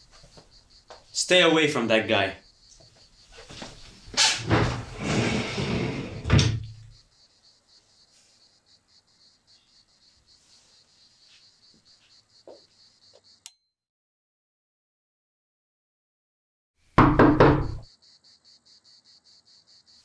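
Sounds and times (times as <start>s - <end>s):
faint high-pitched hiss: 0.0s - 13.4s
door closing with a bang: 4.2s - 6.8s.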